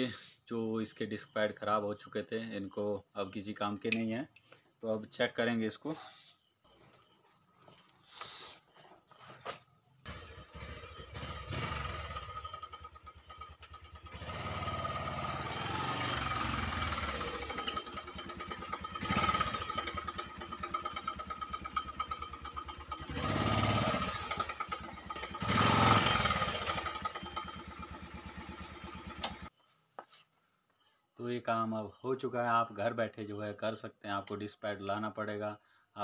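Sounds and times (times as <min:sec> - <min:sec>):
motorcycle engine idling and revving: 0:10.0 - 0:29.5.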